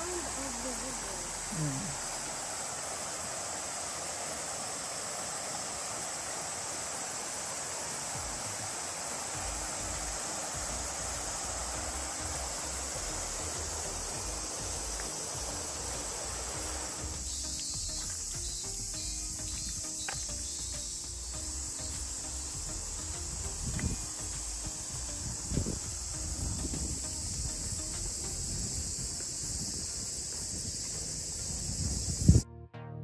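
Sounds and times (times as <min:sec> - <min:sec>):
flowing water rushing: 0:00.0 - 0:32.4
high chirring of insects: 0:00.0 - 0:32.4.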